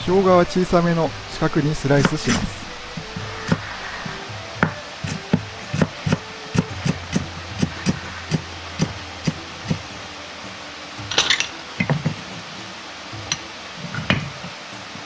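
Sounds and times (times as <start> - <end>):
cleaver chopping on cutting board: 4.6 - 8.0.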